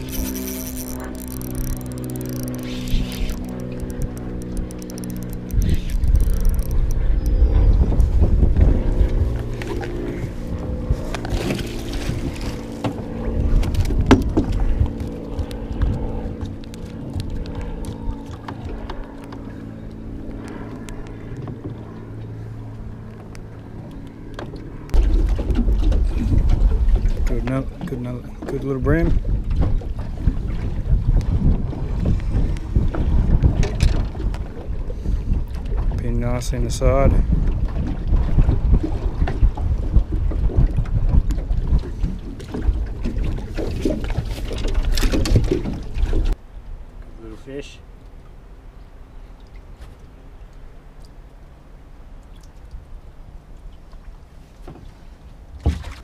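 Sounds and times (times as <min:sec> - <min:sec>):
wind on microphone: 0:00.0 - 0:23.8, 0:24.6 - 0:46.8
electric trolling motor humming: 0:00.0 - 0:35.9.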